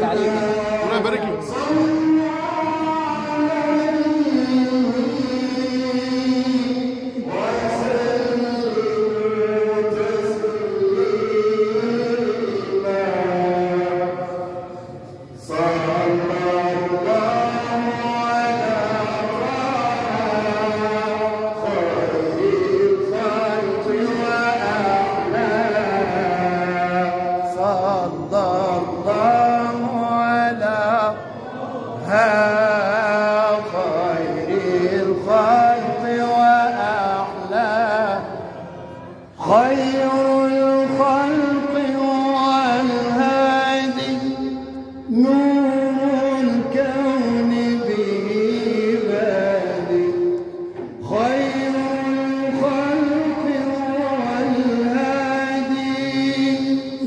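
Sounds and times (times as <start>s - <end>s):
man chanting solo: 0.0s - 14.7s
man chanting into a microphone: 0.0s - 57.0s.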